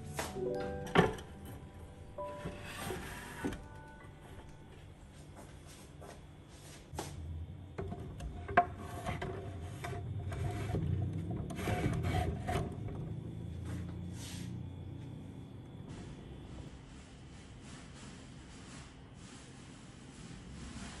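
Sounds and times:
objects scraping on wooden shelf: 0.0s - 4.5s, 7.8s - 14.6s.

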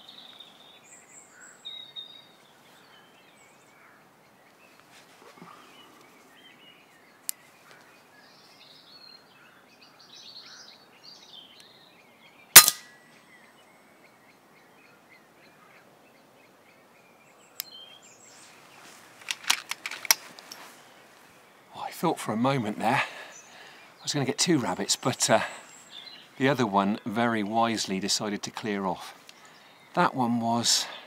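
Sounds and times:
birds chirping: 0.0s - 31.0s
air rifle shot: 12.6s - 12.9s
sharp clicks: 19.2s - 20.5s.

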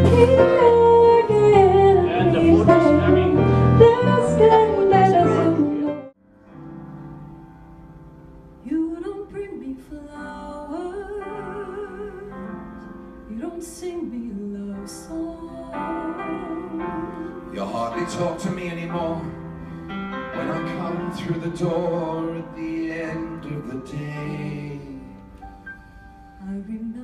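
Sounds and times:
bass guitar: 0.0s - 6.1s
woman singing: 0.0s - 6.2s, 8.6s - 12.6s, 13.3s - 17.5s, 26.4s - 27.0s
piano: 0.0s - 27.0s.

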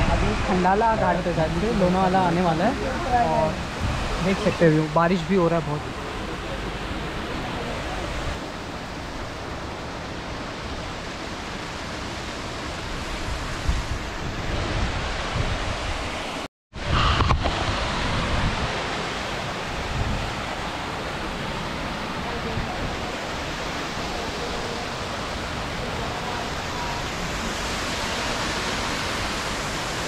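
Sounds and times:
wind buffeting microphone: 0.0s - 5.1s, 12.6s - 30.0s
wind and rain hiss: 0.0s - 30.0s.

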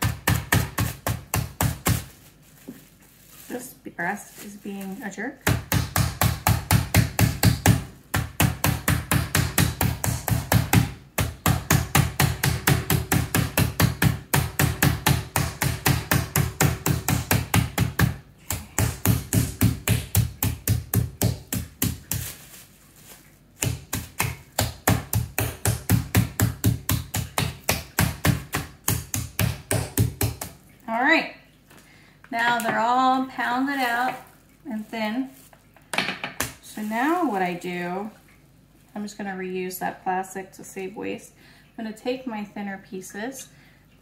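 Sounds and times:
meat mallet pounding chicken: 0.0s - 2.1s, 5.4s - 22.3s, 23.6s - 30.6s.

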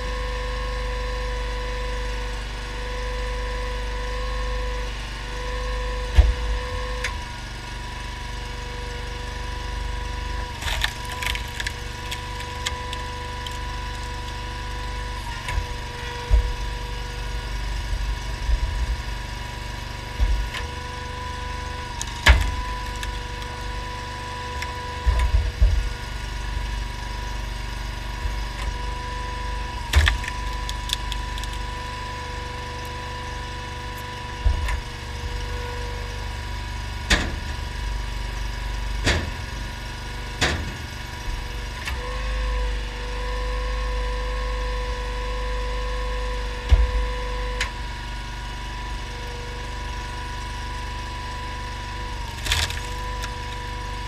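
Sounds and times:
engine running steadily: 0.0s - 54.0s
hydraulic whine: 0.0s - 54.0s
wood splitting cracks: 10.5s - 16.8s, 21.7s - 26.4s, 28.3s - 34.9s, 52.3s - 54.0s.

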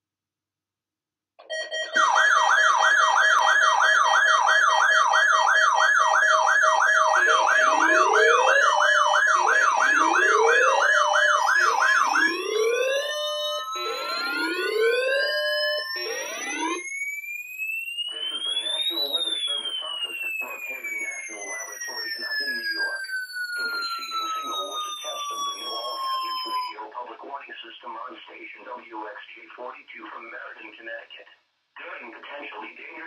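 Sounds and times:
steady beeping tones: 1.4s - 2.2s, 5.4s - 16.9s, 17.7s - 26.8s
fast warbling alarm tone: 1.4s - 27.0s.

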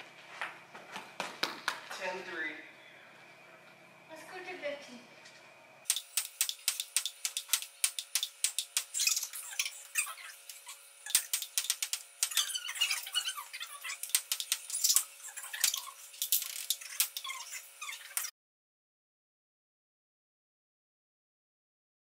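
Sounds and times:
shoe squeaks: 8.9s - 11.4s, 12.3s - 14.1s, 14.7s - 18.3s.

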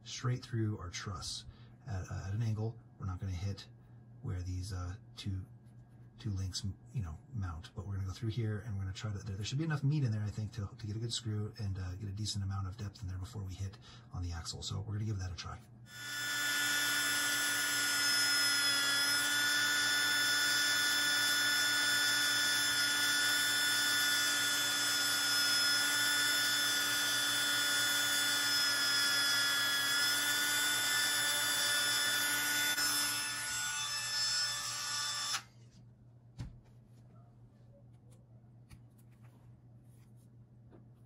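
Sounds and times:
rotary tool whining: 15.9s - 35.6s.

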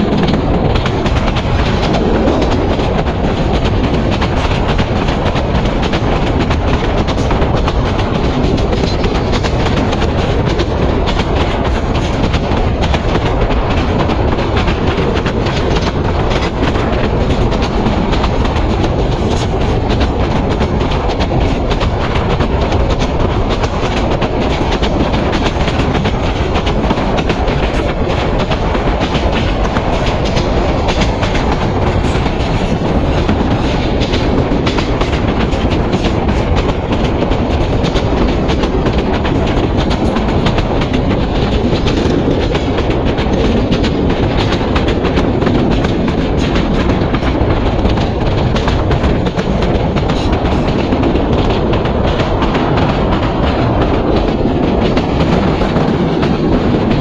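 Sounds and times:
train wheels rumbling on rails: 0.0s - 57.0s
wheels clicking over rail joints: 0.0s - 57.0s.

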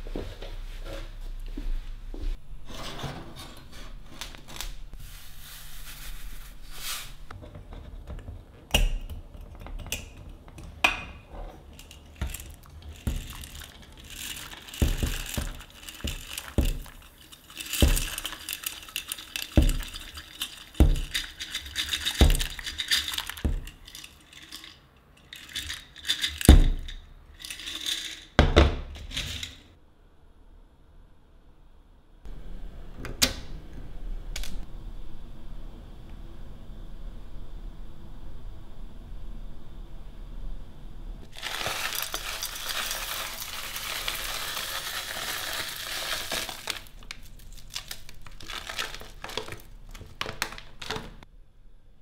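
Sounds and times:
dry pasta pouring into pot: 11.8s - 26.6s, 41.3s - 50.9s
pot and glass jar clinking: 11.8s - 28.2s.

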